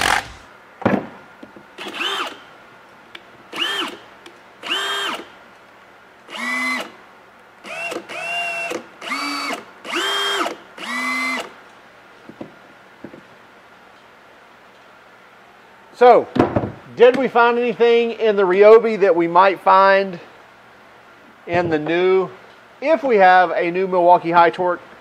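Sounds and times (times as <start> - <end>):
impact wrench motor whine: 0.0 - 0.5, 1.8 - 2.4, 3.5 - 4.0, 4.6 - 5.3, 6.3 - 7.0, 7.6 - 11.6.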